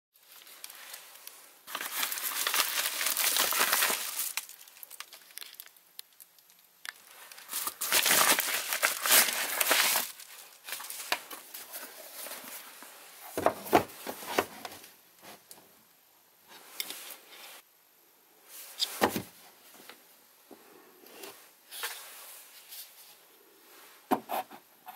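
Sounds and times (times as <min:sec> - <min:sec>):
plastic packaging crinkling: 0:00.2 - 0:12.8.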